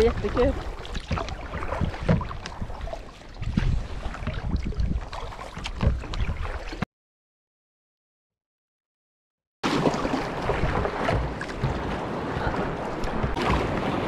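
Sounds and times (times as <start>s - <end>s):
wind on microphone: 0.0s - 5.2s
paddle strokes splashing: 0.0s - 6.8s, 9.6s - 14.0s
water sloshing along hull: 0.0s - 6.9s, 9.6s - 14.0s.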